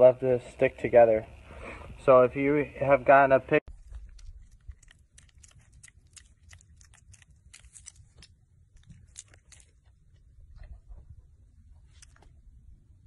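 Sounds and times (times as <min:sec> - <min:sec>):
piglet chewing and smacking: 0:03.7 - 0:12.5.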